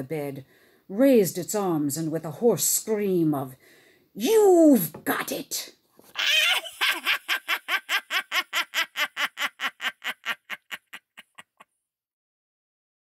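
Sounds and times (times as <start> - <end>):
cackling laugh: 6.2 - 11.7.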